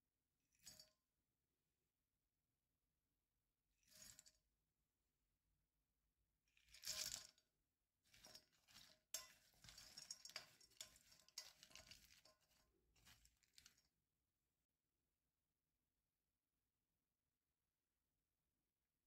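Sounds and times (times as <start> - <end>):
nuts rattling in glass bowl: 6.7 - 7.4, 8.1 - 13.9
wooden spoon stirring: 8.1 - 13.9.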